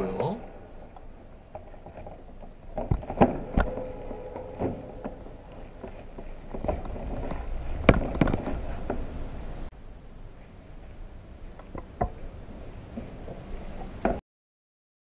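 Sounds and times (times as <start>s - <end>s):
rustling handling of parts: 0.8s - 9.7s.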